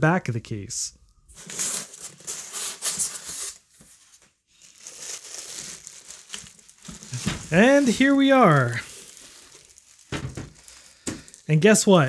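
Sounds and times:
paper and plastic wrap rustling: 1.3s - 12.0s.

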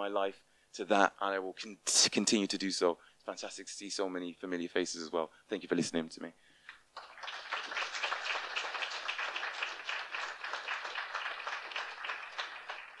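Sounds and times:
audience applauding: 6.9s - 13.0s.

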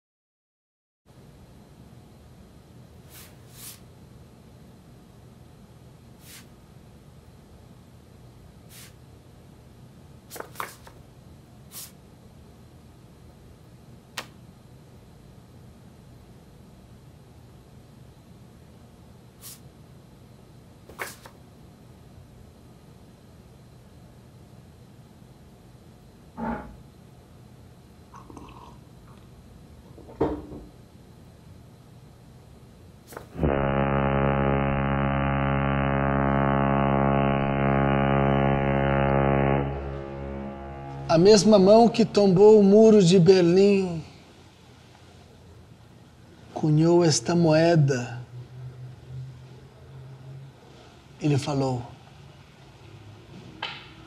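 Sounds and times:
low steady hum: 1.1s - 53.3s
sharp paper click: 10.3s - 11.0s, 20.9s - 21.4s, 33.1s - 33.4s
low sustained musical drone: 33.5s - 43.4s, 48.1s - 50.7s.

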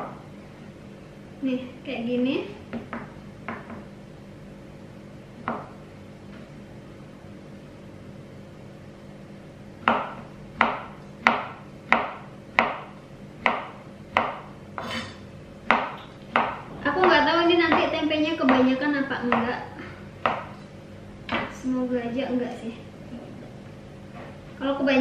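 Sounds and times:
knife strikes on cutting board: 9.8s - 17.9s.

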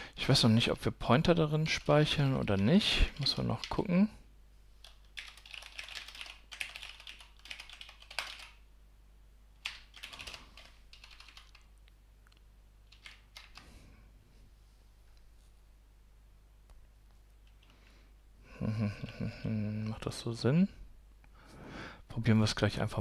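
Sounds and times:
typing on computer keyboard: 1.8s - 3.8s, 4.8s - 8.6s, 9.6s - 11.7s, 12.9s - 13.7s.

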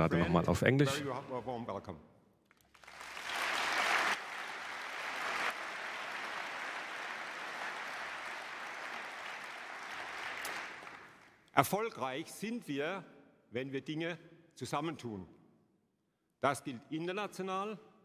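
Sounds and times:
large audience applauding: 2.5s - 11.4s.

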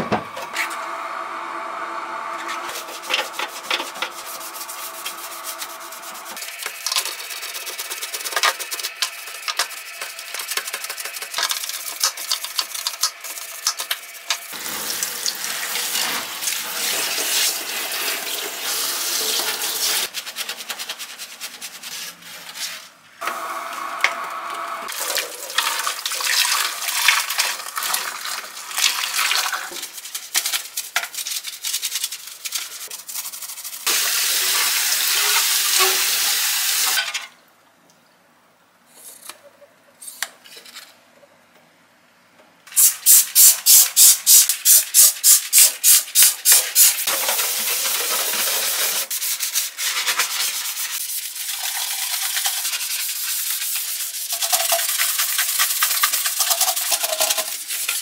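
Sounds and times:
brush scrubbing plastic: 2.4s - 23.0s, 25.0s - 34.0s, 44.7s - 58.0s
tap water running and splashing: 10.5s - 20.1s, 24.9s - 29.9s, 33.9s - 37.0s, 54.3s - 58.0s.

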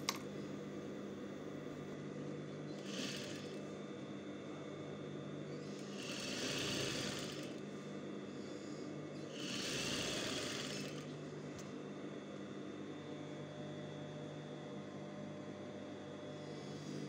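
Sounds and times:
sewing machine motor hum: 2.6s - 3.8s, 5.5s - 7.9s, 8.6s - 11.8s
sewing machine stitching fabric: 2.7s - 3.6s, 5.7s - 7.6s, 9.3s - 11.2s.

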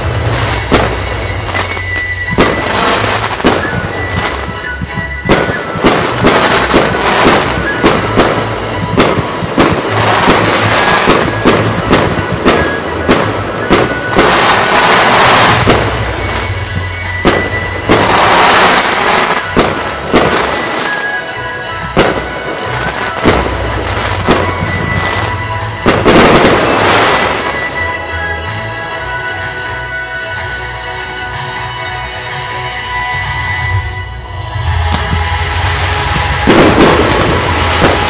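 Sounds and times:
firework bangs: 0.0s - 30.5s, 32.9s - 38.0s
falling firework whistle: 0.0s - 31.7s, 32.4s - 38.0s
dense firework crackling: 0.0s - 31.8s, 33.2s - 38.0s
music: 0.0s - 38.0s.

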